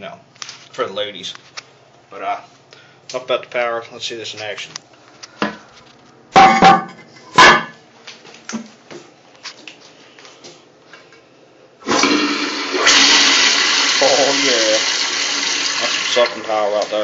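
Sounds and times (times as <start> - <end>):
toilet flushing: 11.8 - 17.0.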